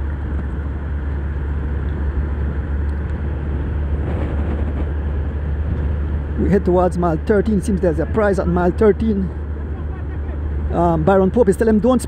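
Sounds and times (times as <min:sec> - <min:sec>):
road noise: 0:00.0 - 0:12.0
vehicle engine drone: 0:00.0 - 0:12.0.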